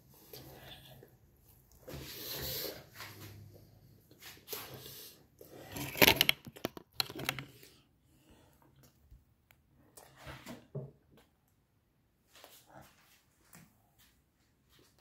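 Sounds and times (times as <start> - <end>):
phone handling rustles: 5.7 - 7.6.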